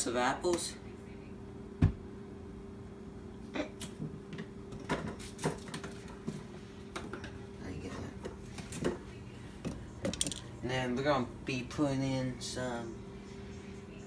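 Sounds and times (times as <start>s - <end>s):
light knocks on kitchen counter: 1.8s - 2.0s.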